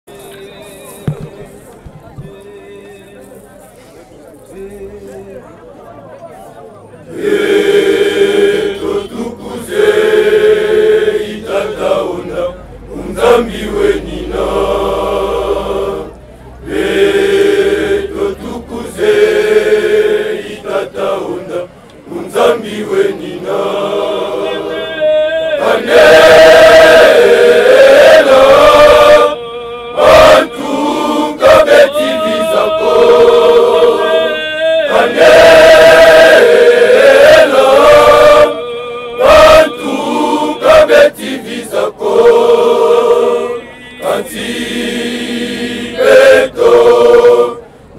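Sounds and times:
men's choir singing a hymn: 0:07.1 - 0:47.7
wavering voice: 0:29.0 - 0:35.2.

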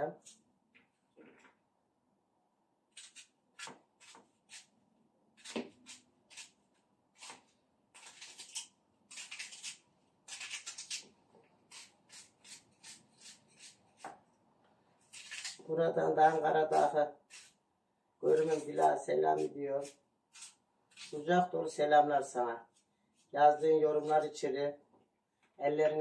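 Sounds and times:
knife cutting through onion: 0:02.9 - 0:04.7, 0:05.4 - 0:14.2, 0:15.0 - 0:17.6, 0:18.2 - 0:21.5, 0:22.7 - 0:24.4.

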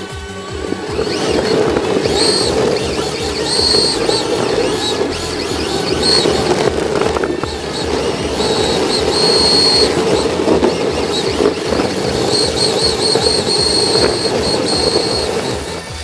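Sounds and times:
electric motor whine: 0:00.0 - 0:16.0
tyres rumbling on asphalt: 0:00.0 - 0:16.0
wind on microphone: 0:00.0 - 0:16.0.

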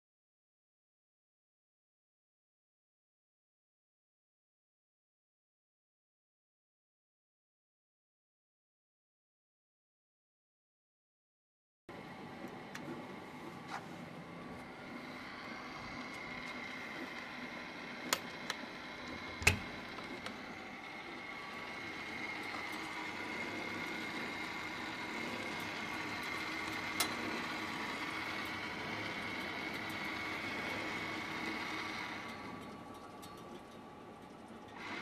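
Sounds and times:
tablet press mechanical hum: 0:11.9 - 0:35.0.

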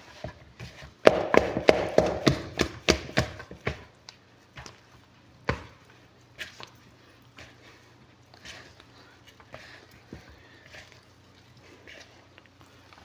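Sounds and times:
dough slapped in plastic bowl: 0:01.0 - 0:03.9.

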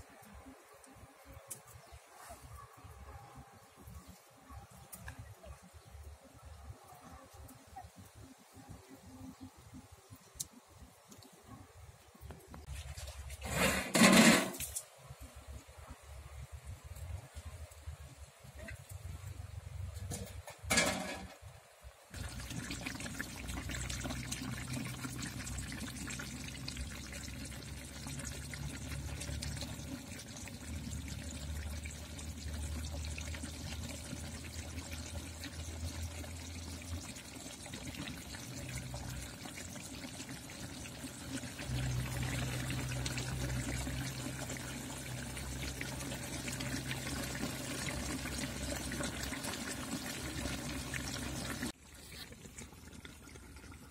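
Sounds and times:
metal lid clattering: 0:13.5 - 0:14.8, 0:20.2 - 0:21.4
curry bubbling in pot: 0:22.1 - 0:53.9.

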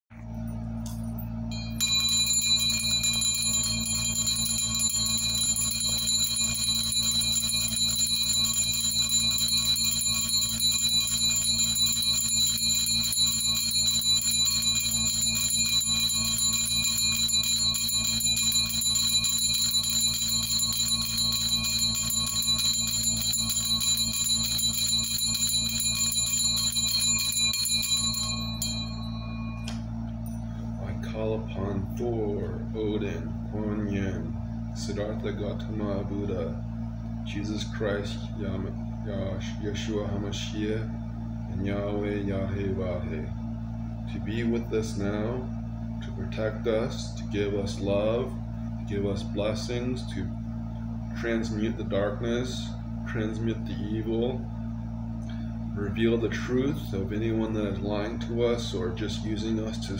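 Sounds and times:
hand bell ringing: 0:00.9 - 0:30.5.

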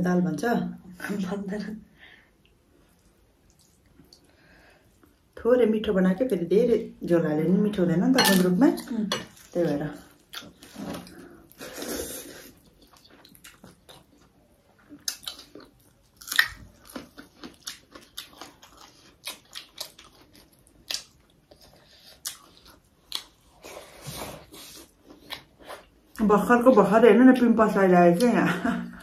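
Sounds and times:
person chewing food: 0:02.4 - 0:05.3, 0:10.1 - 0:26.2.

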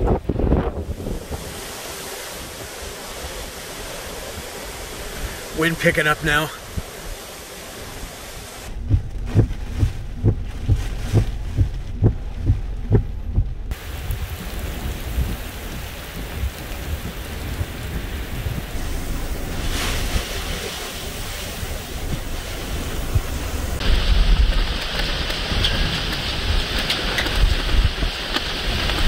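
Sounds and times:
strong wind: 0:00.0 - 0:06.0, 0:06.6 - 0:29.0
heavy rain on pavement: 0:00.0 - 0:12.6, 0:13.7 - 0:29.0
muffled low thumps: 0:08.7 - 0:24.6.

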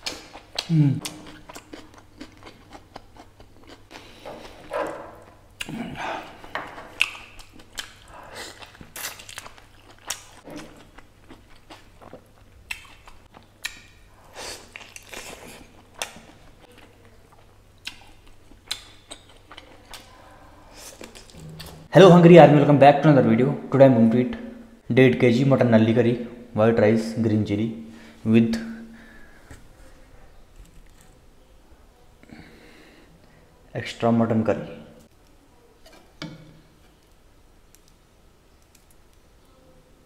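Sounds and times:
chewing and biting meat off bones: 0:00.0 - 0:04.7, 0:06.8 - 0:13.9.

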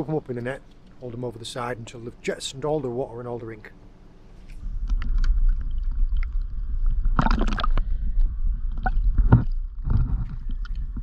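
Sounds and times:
low rumble: 0:04.5 - 0:11.0
squid splashing and squirting water: 0:04.9 - 0:08.1.

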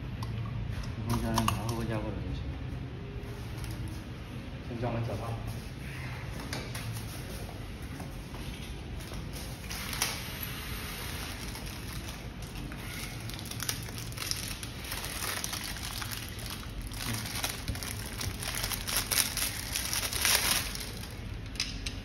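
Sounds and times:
plastic wrapping crinkling: 0:09.0 - 0:21.6.

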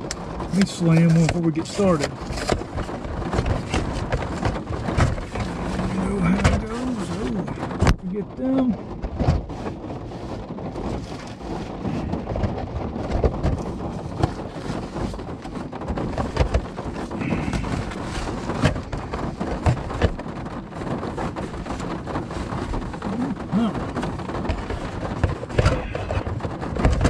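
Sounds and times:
rain pattering on car roof: 0:00.0 - 0:27.0.

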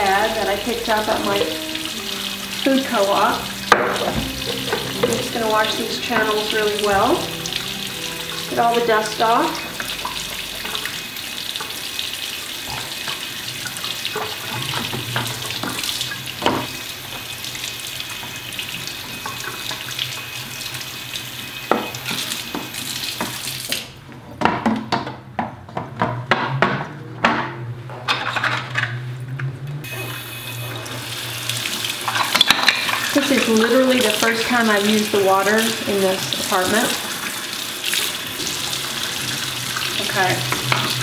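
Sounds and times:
tap running into sink: 0:00.4 - 0:11.8, 0:12.6 - 0:17.3, 0:21.6 - 0:25.2, 0:31.6 - 0:41.0.

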